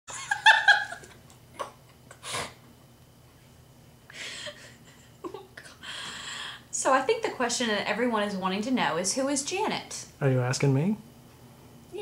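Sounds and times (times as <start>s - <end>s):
person giggling: 4.1s - 5.7s.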